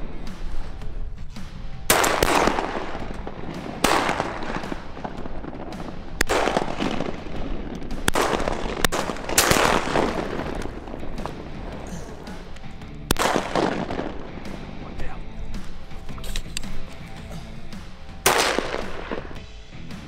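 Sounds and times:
background music: 0.0s - 20.0s
shotgun blasts: 1.8s - 14.6s, 18.2s - 19.4s.

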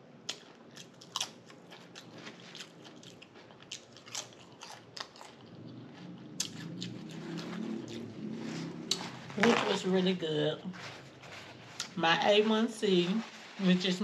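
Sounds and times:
person chewing crunchy food: 0.2s - 9.4s.

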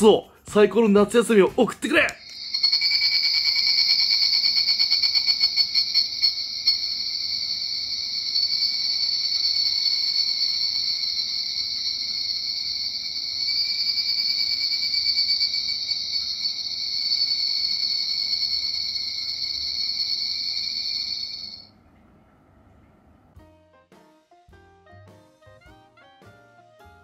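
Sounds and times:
cicada call through small speaker: 2.2s - 21.7s.

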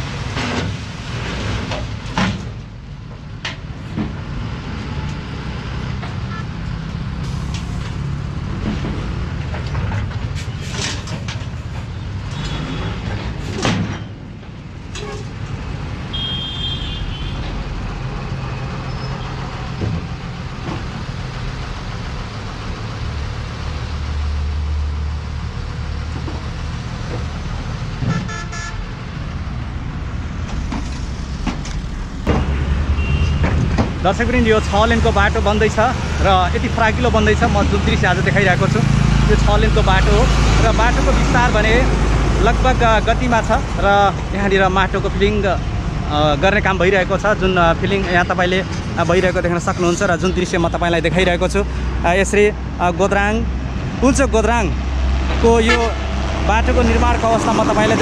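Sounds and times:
dump truck diesel engine running: 17.5s - 28.2s.

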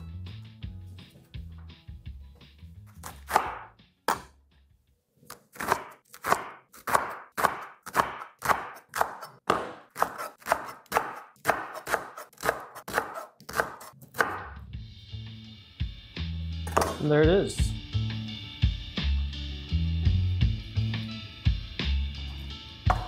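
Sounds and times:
knife slicing cabbage on board: 2.9s - 4.4s, 5.2s - 14.4s.

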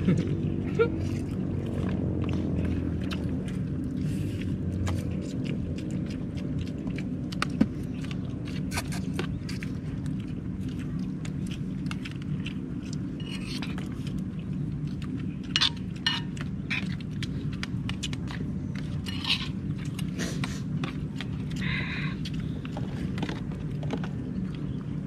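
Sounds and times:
low hum: 0.0s - 25.0s
dishes and utensils clinking: 15.5s - 17.0s.

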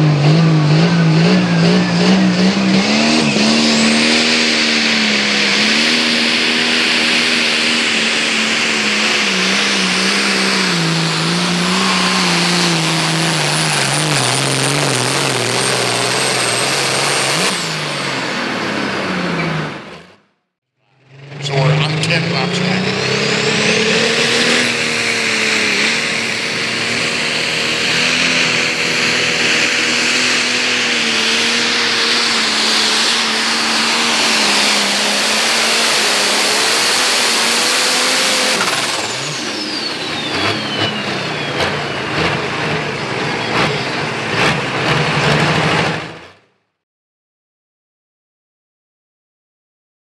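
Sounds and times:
high turbo whine: 0.0s - 46.4s
diesel tractor engine under load: 0.0s - 46.5s.

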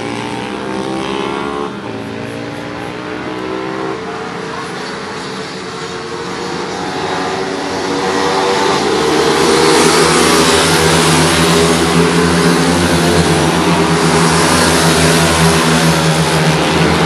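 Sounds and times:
pit bike engines racing: 0.0s - 17.0s.

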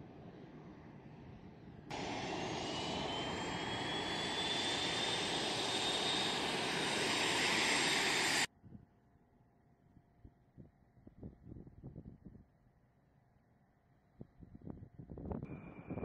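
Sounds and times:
jet engine roar with turbine whine: 0.0s - 8.5s.

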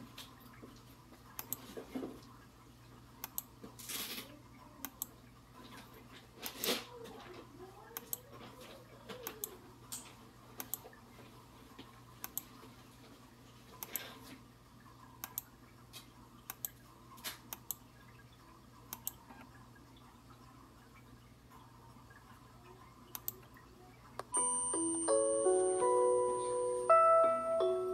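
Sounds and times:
low electrical hum: 0.0s - 27.9s
computer mouse clicks: 1.4s - 1.6s, 3.2s - 3.5s, 4.8s - 5.1s, 8.0s - 8.3s, 10.6s - 10.8s, 12.2s - 12.5s, 13.8s - 14.1s, 15.2s - 15.5s, 16.5s - 16.8s, 17.5s - 17.8s, 18.9s - 19.6s, 23.1s - 23.6s.

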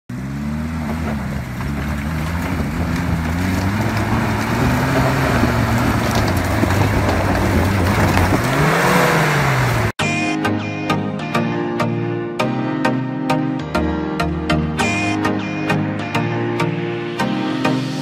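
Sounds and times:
off-road vehicle engine revving: 0.1s - 10.0s.

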